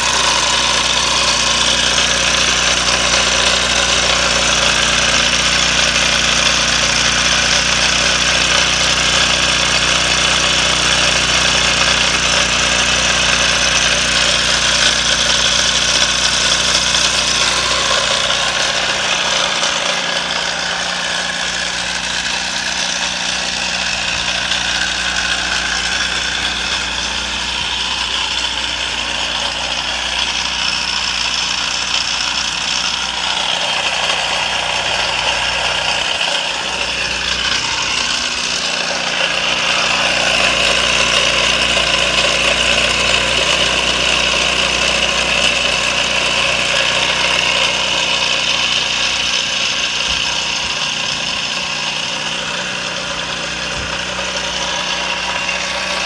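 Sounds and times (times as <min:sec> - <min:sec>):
small engine running: 0:00.0 - 0:56.0.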